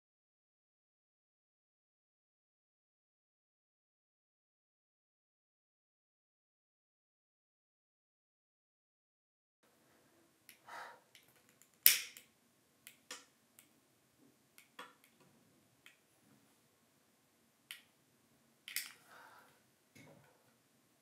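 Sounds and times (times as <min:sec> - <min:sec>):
sharp clicks and snaps: 0:11.2 - 0:13.8, 0:14.6 - 0:16.0, 0:17.7 - 0:17.9, 0:18.7 - 0:19.0.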